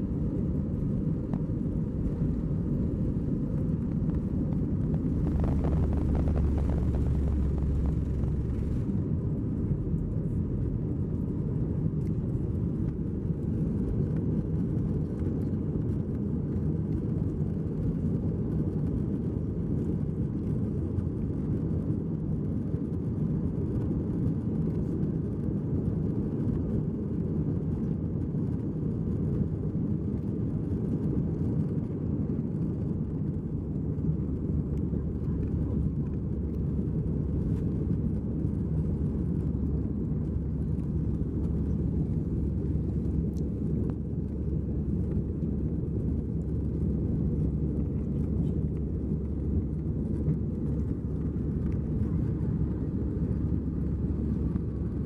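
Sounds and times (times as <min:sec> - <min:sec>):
airplane cabin engine noise: 0:00.0 - 0:55.0
rushing air: 0:04.1 - 0:09.2.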